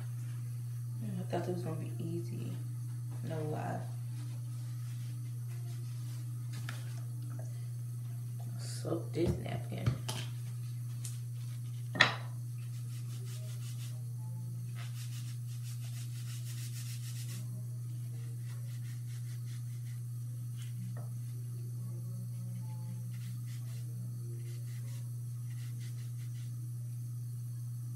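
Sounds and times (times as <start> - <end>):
steady low hum: 0.0 - 27.9
napkin rubbing and rustling: 4.0 - 7.0.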